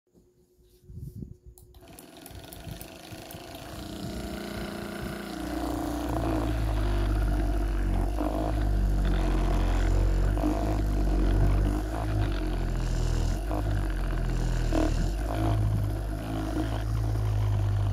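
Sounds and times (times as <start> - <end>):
massage gun buzzing: 1.7 - 17.9.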